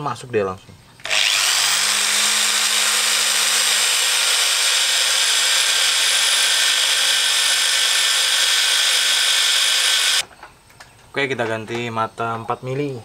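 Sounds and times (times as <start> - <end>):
electric drill whining: 1.0 - 10.2.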